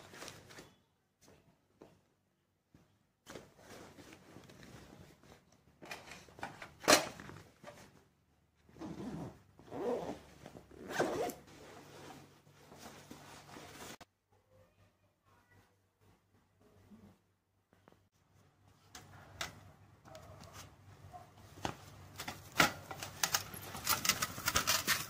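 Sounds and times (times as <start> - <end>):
fabric rustling: 3.2 - 5.4, 7.2 - 14.0
zipper pulled shut: 8.8 - 11.5.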